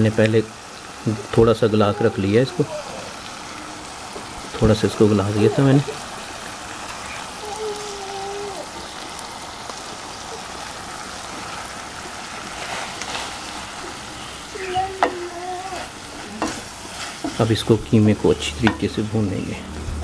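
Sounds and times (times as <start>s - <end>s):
meat sizzling in hot oil: 0.0s - 20.0s
wooden spoon stirring in pan: 0.6s - 20.0s
spoon knocking on pan: 15.0s - 16.6s.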